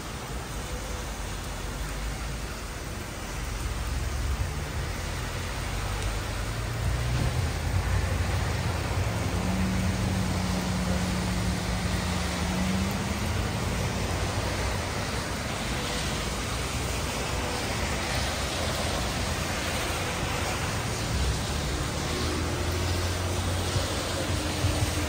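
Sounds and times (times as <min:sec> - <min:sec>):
heavy rain on pavement: 0:00.0 - 0:25.0
car engine hum: 0:05.3 - 0:15.9.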